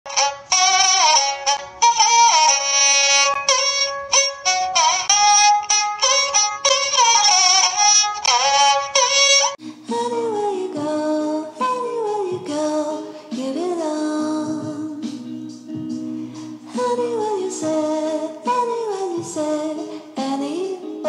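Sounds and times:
song with sung melody: 9.5 - 21.0.

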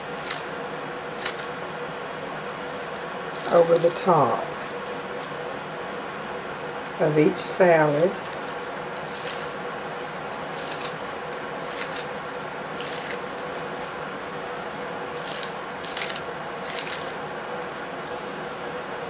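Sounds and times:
shears snipping onion stalks: 0.0 - 4.8, 7.8 - 14.0, 15.1 - 17.2
faint room hum: 0.0 - 19.0.

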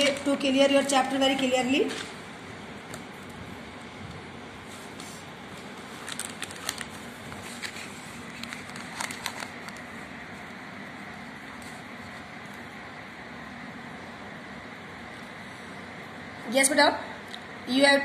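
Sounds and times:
steady background hum: 0.0 - 18.0
paper rustling: 4.7 - 10.0.

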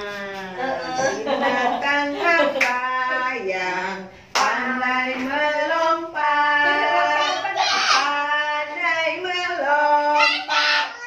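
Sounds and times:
women singing: 0.0 - 11.0
hand claps: 4.3 - 4.6
children singing: 4.8 - 11.0.

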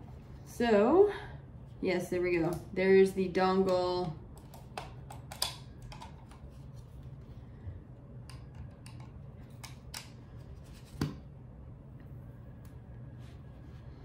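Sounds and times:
plastic clicks and snaps: 3.7 - 6.4.

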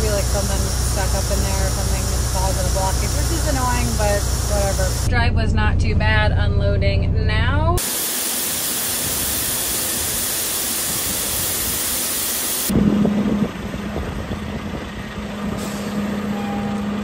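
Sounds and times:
grain pouring hiss: 0.0 - 5.1, 7.8 - 12.7
low hum: 0.0 - 7.8.

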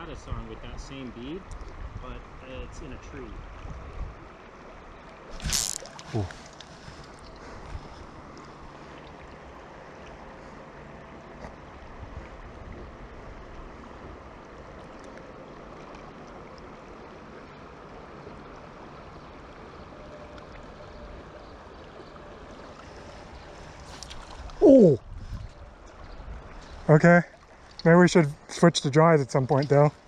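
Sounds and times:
river water rushing: 4.2 - 25.0.

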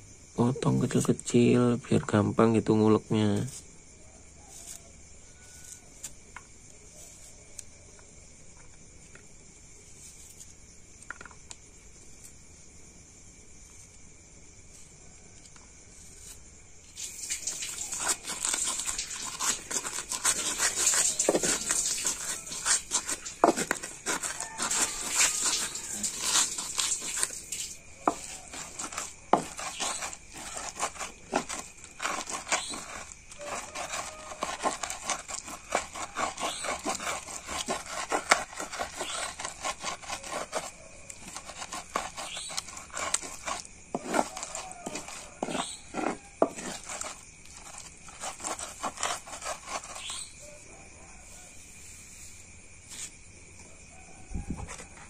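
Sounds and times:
knife chopping on cutting board: 19.3 - 25.6, 43.0 - 47.0.

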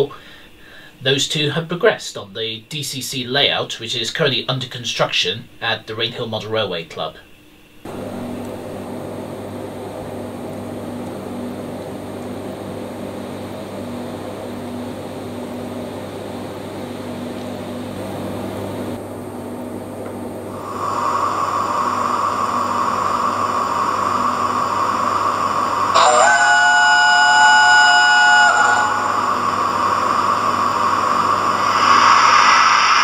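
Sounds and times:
low hum: 7.9 - 12.3, 16.6 - 33.0
model steam locomotive hiss: 20.5 - 33.0.

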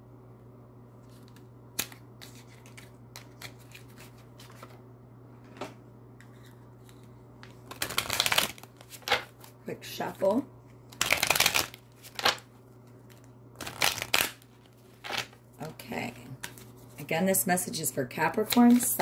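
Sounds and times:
steady low hum: 0.0 - 19.0
deck of cards shuffling: 1.0 - 4.8, 6.3 - 9.6, 10.9 - 12.4, 13.0 - 15.4.

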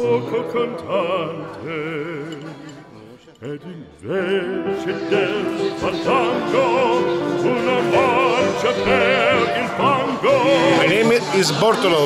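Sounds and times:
operatic singing: 0.0 - 12.0
sustained musical accompaniment: 4.1 - 12.0.

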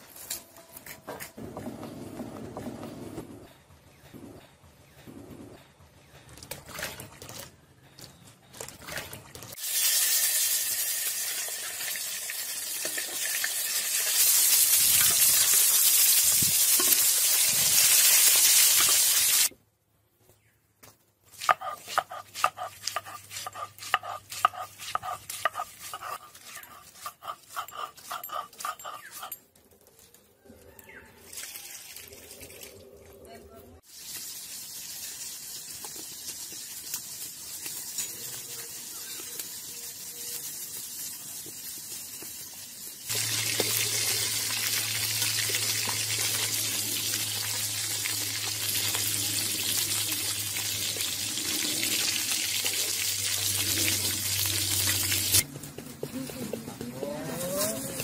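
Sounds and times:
tomatoes sizzling in hot oil: 9.6 - 19.5, 33.8 - 55.4.

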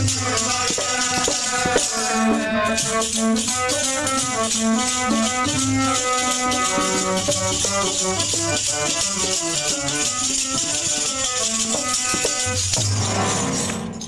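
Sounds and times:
instrumental melody in held notes: 0.0 - 14.0
shaking rattle percussion: 0.0 - 14.0.

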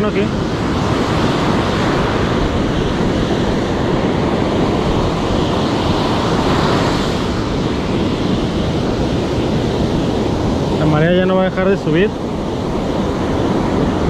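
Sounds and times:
ocean surf breaking on beach: 0.0 - 14.0
wind rumbling on microphone: 0.0 - 14.0.

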